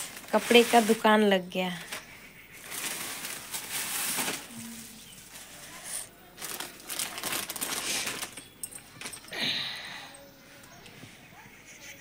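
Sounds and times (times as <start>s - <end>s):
plastic bag rustling: 0.0s - 9.4s.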